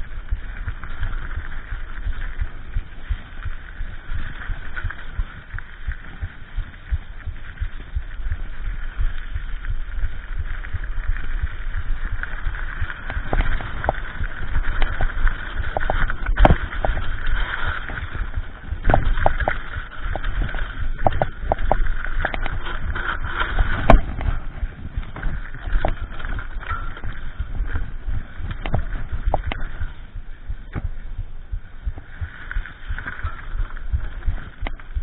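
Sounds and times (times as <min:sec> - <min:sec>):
bike tyres and frame rattling: 0:00.0 - 0:35.0
bike knocking over bumps: 0:10.4 - 0:31.1.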